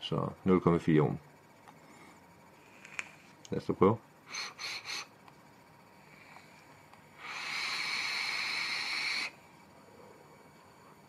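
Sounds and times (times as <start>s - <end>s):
vape coil hiss and sizzle: 4.2s - 9.4s.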